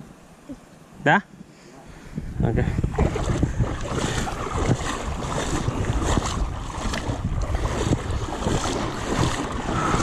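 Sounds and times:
wind buffeting microphone: 1.9 - 10.0
river water lapping and splashing: 2.7 - 10.0.

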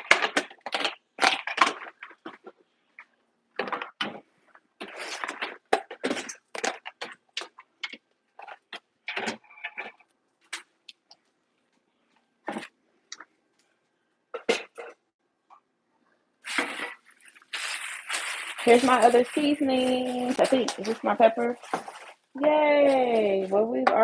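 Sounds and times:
plastic containers clattering: 0.0 - 10.7, 14.3 - 15.0, 16.5 - 22.2.

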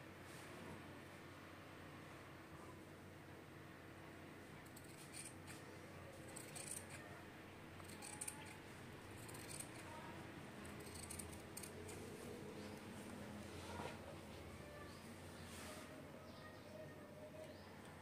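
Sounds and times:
scissors snipping cloth: 6.3 - 7.0, 7.8 - 8.6, 10.7 - 12.0.

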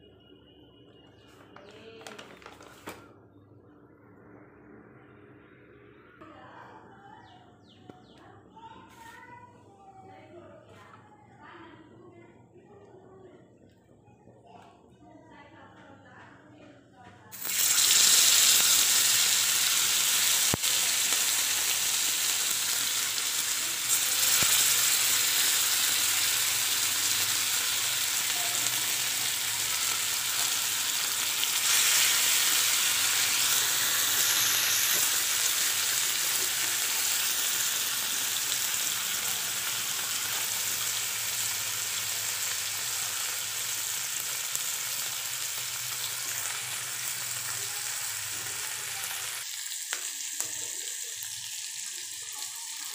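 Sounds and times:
fish sizzling in hot oil: 17.3 - 52.9.

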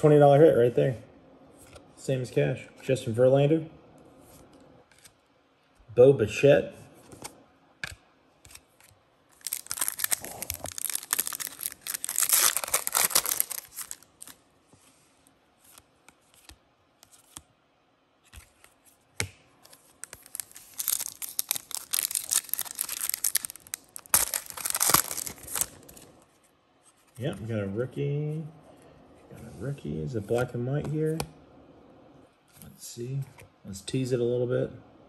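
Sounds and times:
foil wrapper tearing open: 9.4 - 14.4, 20.0 - 26.0.

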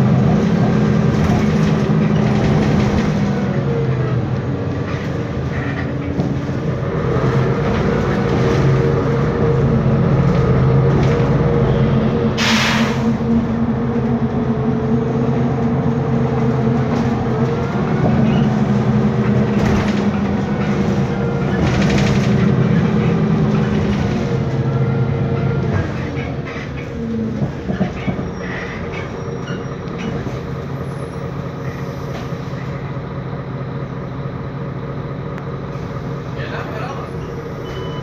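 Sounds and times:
bus engine droning: 0.0 - 38.0
short air hiss: 12.4 - 13.0.

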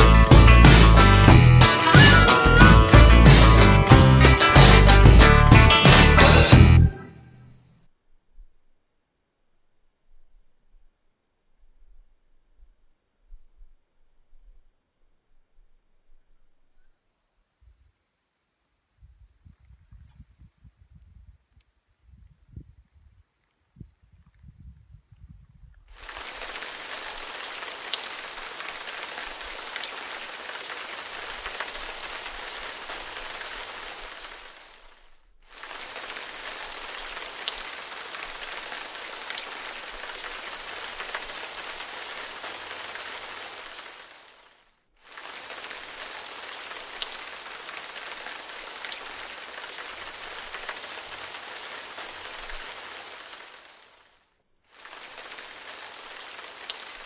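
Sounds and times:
steady rain pattering: 0.0 - 6.5, 25.9 - 57.0.

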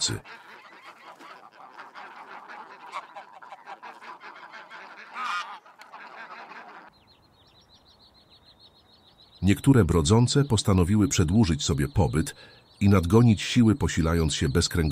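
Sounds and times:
geese honking: 0.0 - 6.9.

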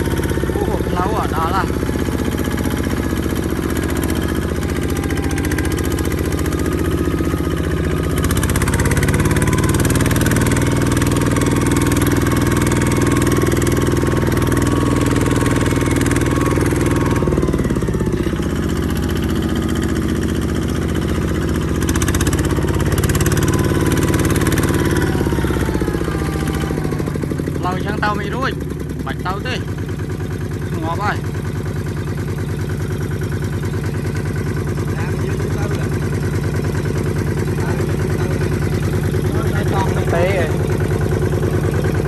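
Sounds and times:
diesel engine running: 0.0 - 42.0.

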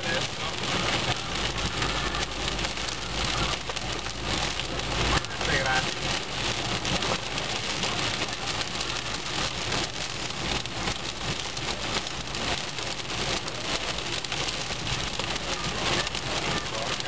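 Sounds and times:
heavy rain on car roof: 0.0 - 17.0.

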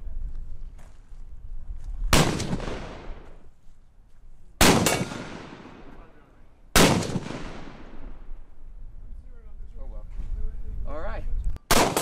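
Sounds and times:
rifle shots: 2.1 - 3.3, 4.6 - 8.3, 11.6 - 12.0.

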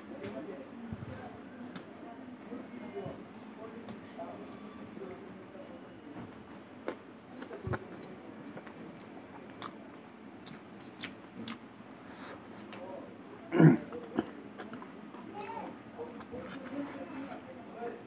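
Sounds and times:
person chewing with smacking sounds: 6.2 - 15.3, 16.0 - 17.5.

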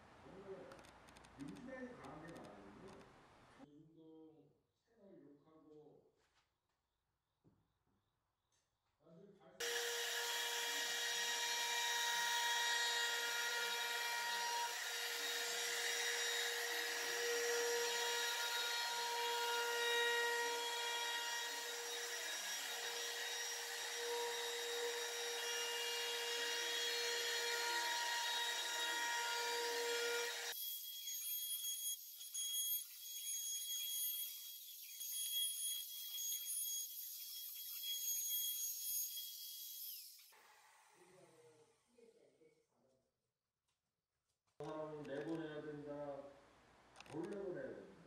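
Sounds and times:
trim router whining: 9.6 - 41.0.

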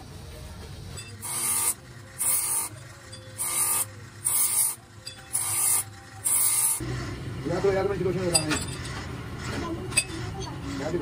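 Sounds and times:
grinding wheel humming: 0.9 - 7.6
grinding wheel grinding metal: 0.9 - 11.0.

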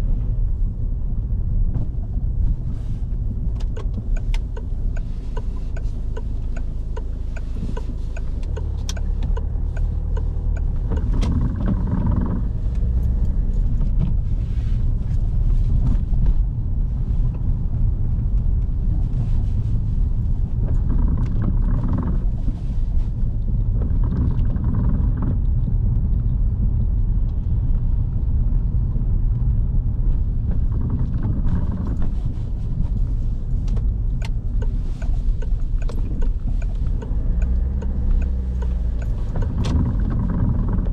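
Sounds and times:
car engine rumble: 0.0 - 40.9
tyres on wet road: 0.0 - 40.9
small clicks and ticks: 3.6 - 13.9, 29.3 - 40.9.

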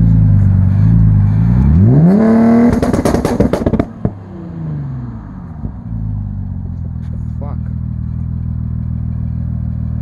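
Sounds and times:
car engine revving: 0.0 - 6.7
exhaust pops and bangs: 2.6 - 4.2.

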